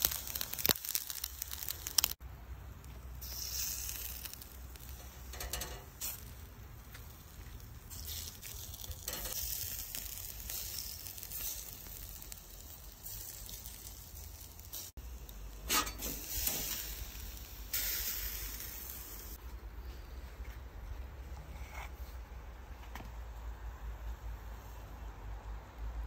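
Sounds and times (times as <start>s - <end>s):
steak sizzling on grill: 0.0s - 2.2s, 3.2s - 19.4s.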